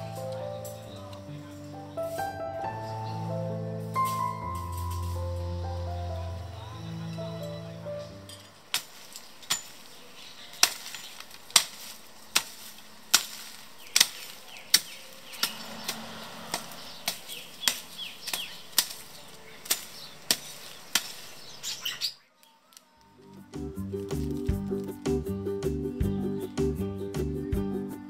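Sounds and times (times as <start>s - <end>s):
hoe chopping dry soil: 8.6s - 21.8s.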